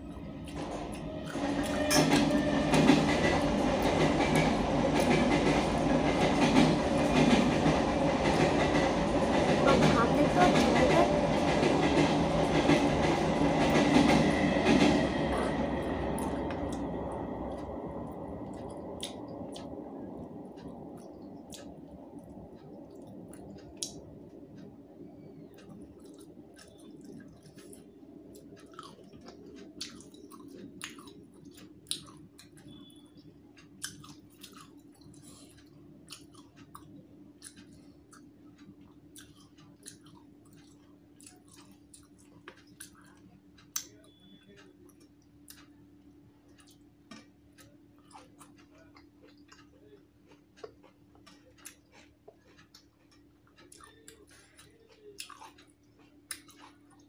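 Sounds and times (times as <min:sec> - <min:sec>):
faint steady hum: 0:00.0 - 0:01.8, 0:12.3 - 0:57.0
person chewing food: 0:15.4 - 0:57.0.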